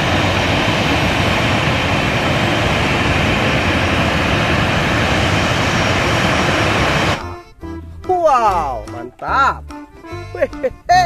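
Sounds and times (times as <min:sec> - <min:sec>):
jet engines rushing: 0:00.0 - 0:07.4.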